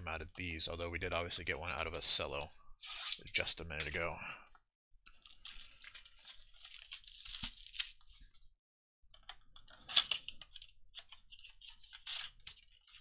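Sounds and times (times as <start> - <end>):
plastic shrink-wrap crinkling: 5.2 - 8.2.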